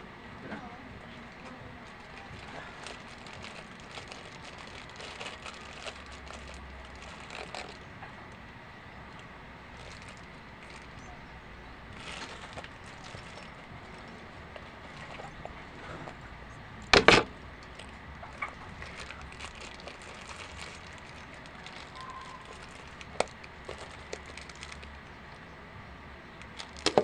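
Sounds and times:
handbag rustling: 1.3s - 7.8s, 9.7s - 11.0s, 11.9s - 16.2s, 17.0s - 25.0s, 26.5s - 27.0s
sharp handling noise: 1.3s - 7.9s, 16.8s - 25.0s.

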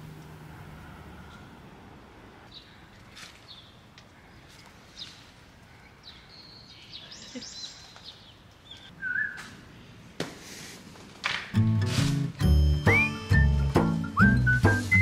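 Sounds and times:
bird chirps: 5.8s - 9.4s.

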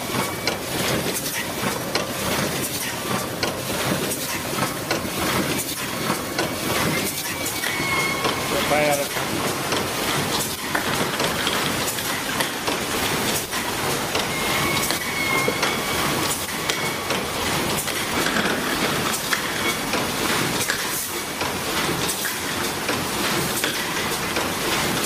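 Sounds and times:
glass jars clattering on conveyor: 10.4s - 21.1s.

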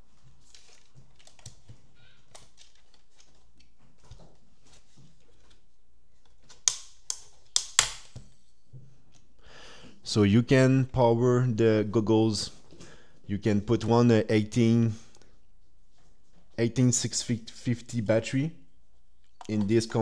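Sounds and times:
plastic goggles handled: 0.3s - 8.2s.

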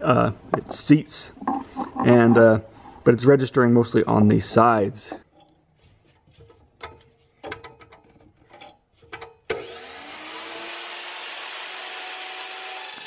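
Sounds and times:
chop saw motor whining: 9.5s - 13.0s.

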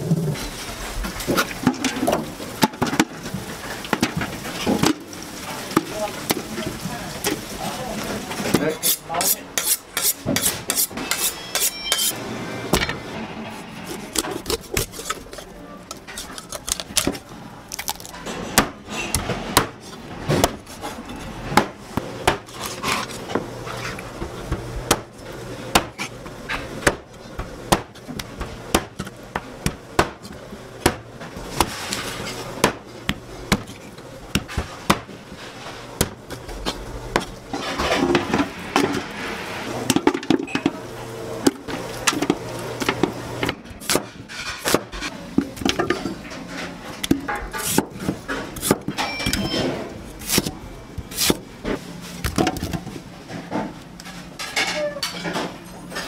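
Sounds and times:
cleaver chopping chicken: 27.7s - 31.8s.

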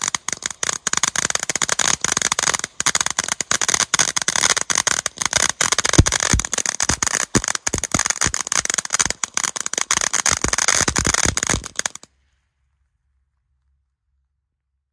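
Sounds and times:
firework bangs: 0.0s - 12.1s
firework hissing and crackling: 0.0s - 12.1s.

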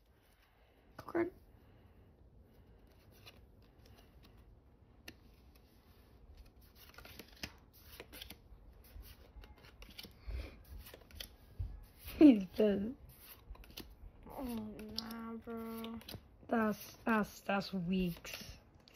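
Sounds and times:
trading cards clicking and sliding: 5.0s - 16.3s, 18.0s - 18.6s.

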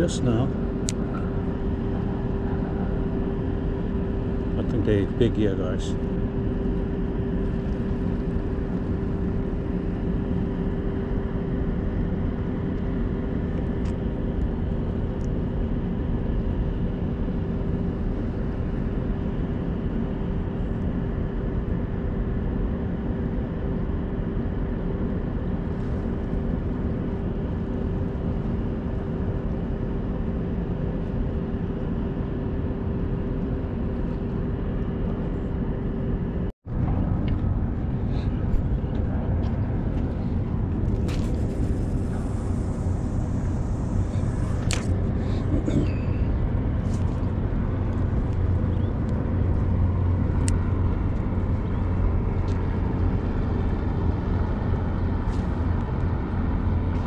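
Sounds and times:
constant hum: 0.0s - 57.0s
low rumble: 34.2s - 57.0s.

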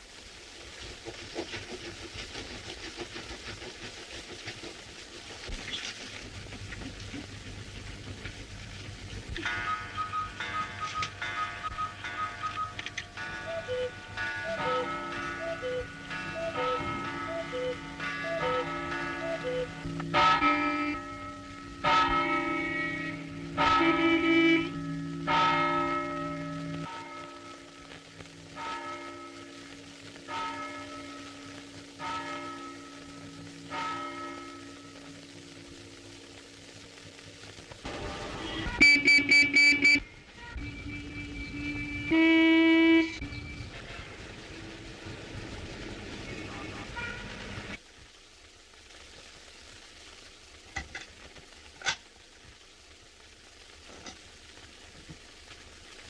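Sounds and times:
film soundtrack hiss: 0.0s - 56.0s
church bell tolling: 9.4s - 12.5s, 14.1s - 19.4s, 20.1s - 27.8s.

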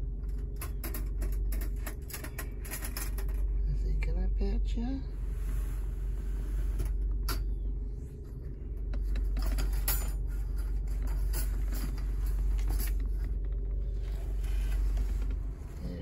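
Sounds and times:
wire cage clicks and rattles: 0.2s - 3.5s
car cabin low rumble: 3.5s - 9.4s, 10.4s - 16.0s.

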